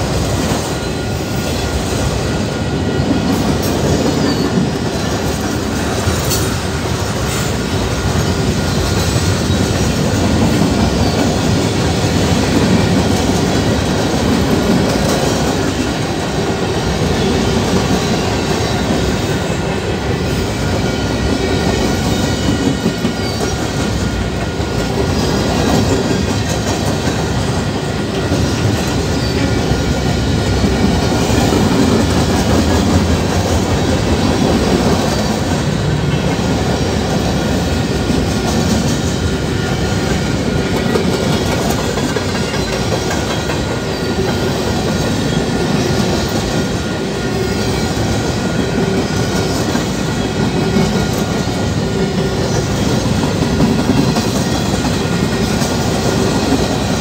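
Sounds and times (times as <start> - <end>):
train wheels rumbling on rails: 0.0 - 57.0
wheels clacking over rail joints: 2.9 - 46.8.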